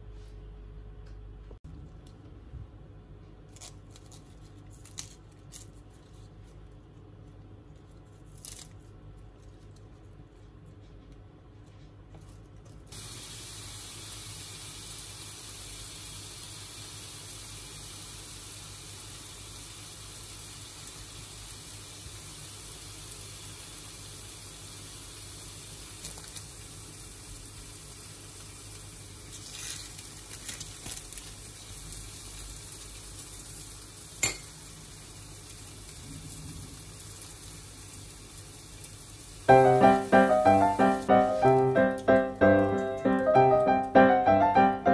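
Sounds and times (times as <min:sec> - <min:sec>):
burger patties sizzling in a pan: 0:12.9 - 0:43.7.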